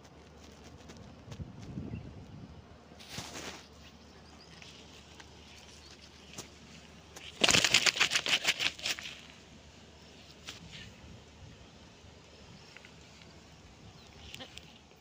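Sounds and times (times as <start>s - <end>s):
fish slapping on sand: 3.0s - 3.8s, 5.1s - 9.4s.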